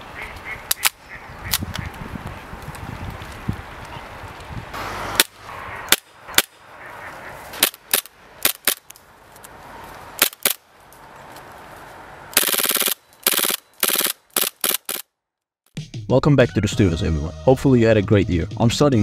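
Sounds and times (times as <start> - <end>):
airsoft gun full-auto bursts: 12.4 - 15.0
airsoft gun shots: 12.4 - 15.0.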